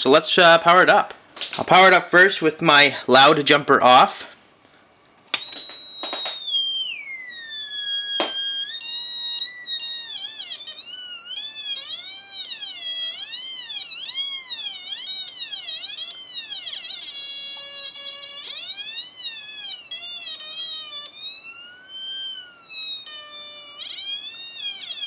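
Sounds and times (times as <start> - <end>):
buzzy electronic theremin tone: 5.4 - 25.0.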